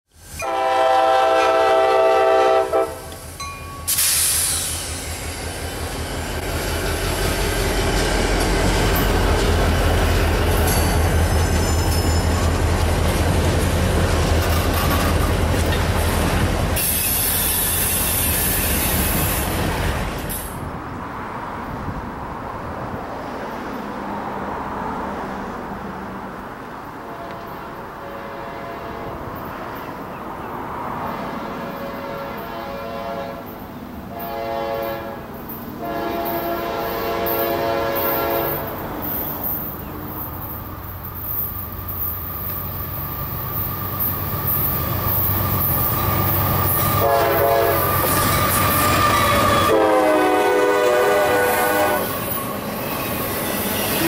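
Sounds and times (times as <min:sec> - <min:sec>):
train wheel noise: 0:00.2 - 0:25.3, 0:33.4 - 0:54.0
locomotive air horn: 0:00.3 - 0:03.3, 0:27.0 - 0:29.3, 0:31.6 - 0:38.8, 0:46.7 - 0:52.6.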